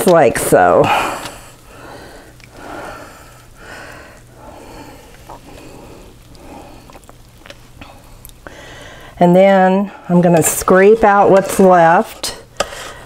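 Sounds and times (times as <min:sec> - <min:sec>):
low steady hum: 0:00.0 - 0:13.0
soft breathing: 0:00.8 - 0:07.1, 0:07.7 - 0:09.2
spoon scraping a saucepan: 0:10.3 - 0:13.0.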